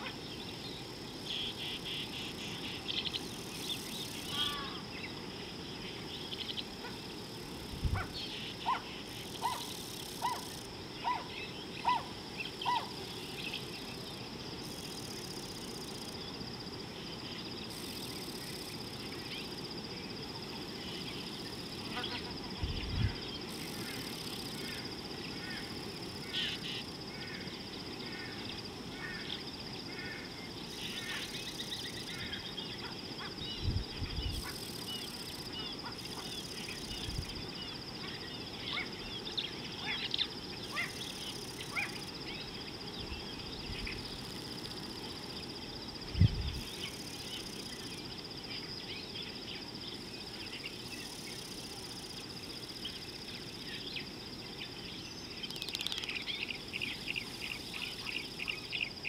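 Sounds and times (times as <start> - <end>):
high insect drone: 0.0 - 59.0
bird chirps: 55.0 - 59.0.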